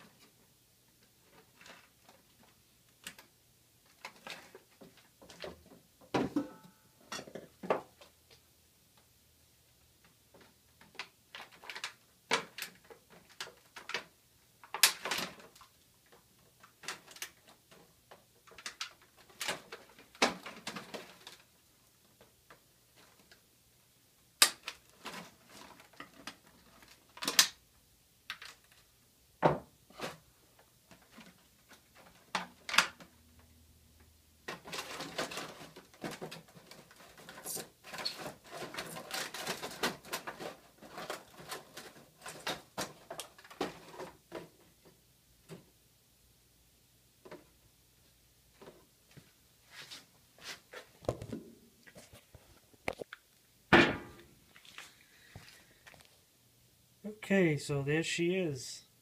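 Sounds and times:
plastic packaging rustling: 24.6s - 27.6s, 34.4s - 45.6s
plastic crinkling: 34.5s - 44.5s.

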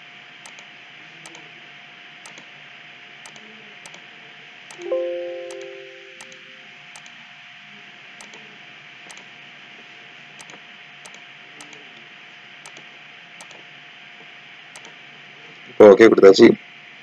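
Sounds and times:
faint constant whine: 0.0s - 17.0s
computer mouse clicks: 0.4s - 0.7s, 2.2s - 2.5s, 3.2s - 4.0s, 9.1s - 9.3s, 10.4s - 11.8s, 12.6s - 13.6s, 14.8s - 15.0s
computer alert chime: 4.7s - 6.6s.

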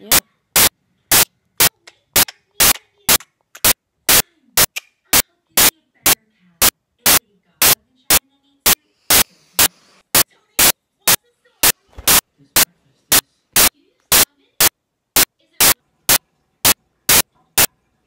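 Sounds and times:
bursts of digital static: 0.0s - 1.7s.

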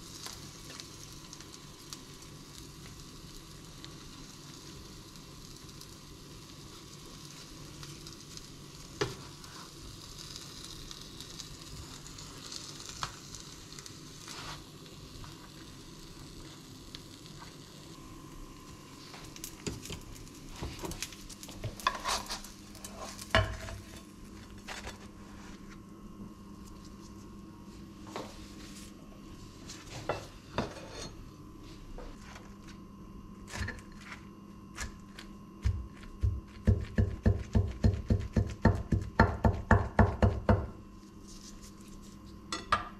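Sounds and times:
omelette sizzling in a pan: 0.0s - 25.7s
spatula knocking and scraping: 21.6s - 24.0s.

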